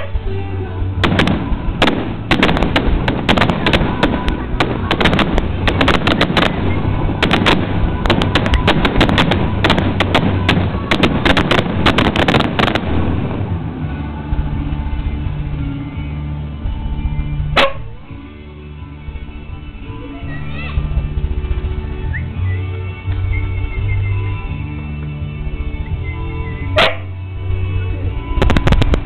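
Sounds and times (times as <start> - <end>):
fireworks bursting: 0.8 - 15.6, 28.4 - 29.0.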